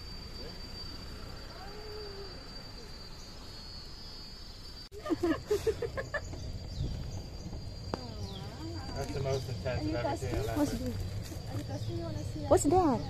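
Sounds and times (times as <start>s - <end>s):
insects buzzing: 0.0s - 13.0s
people's voices: 7.9s - 13.0s.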